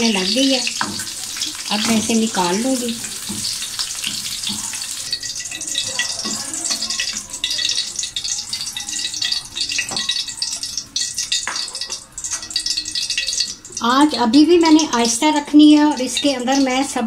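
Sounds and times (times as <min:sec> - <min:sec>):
chillies sizzling in hot oil: 0:00.0 - 0:17.0
spoon tapping and scraping pan: 0:00.3 - 0:13.9.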